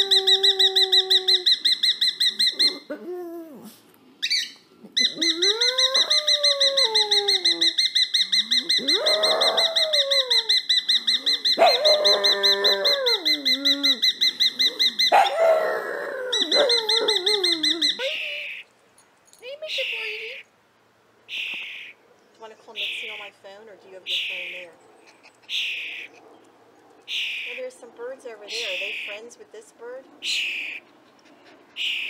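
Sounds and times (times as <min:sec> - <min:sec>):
dog howling: 0:00.0 - 0:01.6, 0:04.9 - 0:07.8, 0:08.4 - 0:18.2
bird warbling trill: 0:07.4 - 0:09.8, 0:10.4 - 0:15.2.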